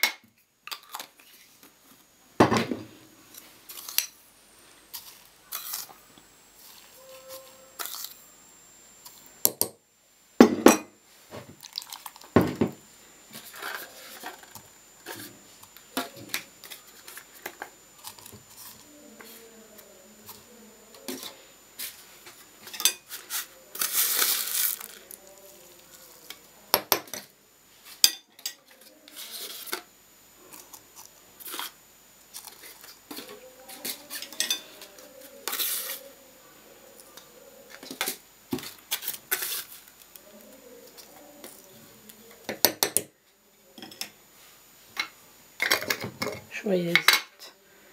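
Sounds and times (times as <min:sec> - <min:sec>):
dishes set down on table: 0:02.4 - 0:02.9, 0:10.4 - 0:11.6, 0:12.3 - 0:12.8.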